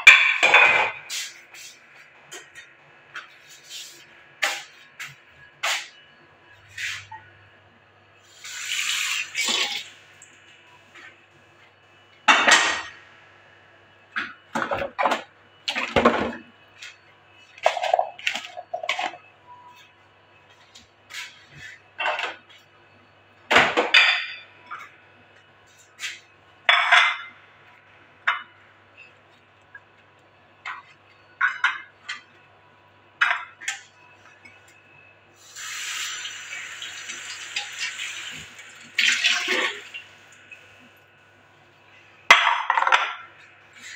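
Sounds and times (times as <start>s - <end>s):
dishes and utensils clattering: 0.0s - 1.3s, 17.6s - 19.3s, 22.0s - 22.4s, 26.7s - 27.4s, 30.6s - 32.3s, 42.3s - 43.9s
tap water running: 8.4s - 10.4s, 35.4s - 40.6s.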